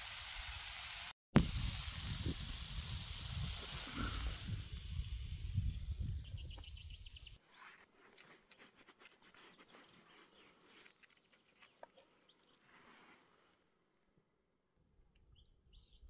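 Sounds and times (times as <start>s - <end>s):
campfire embers crackling: 0.0s - 5.4s.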